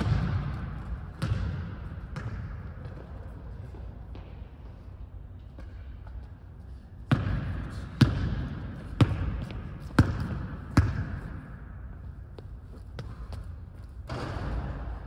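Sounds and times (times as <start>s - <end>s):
basketball bouncing on wooden floor: 0.0s - 3.3s, 7.1s - 11.4s.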